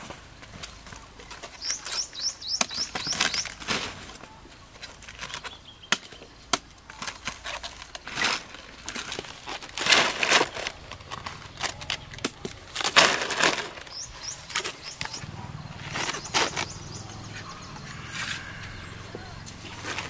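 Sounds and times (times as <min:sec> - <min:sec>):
cabbage leaves crunching: 0:07.0 - 0:20.0
bird chirping rising notes: 0:13.8 - 0:20.0.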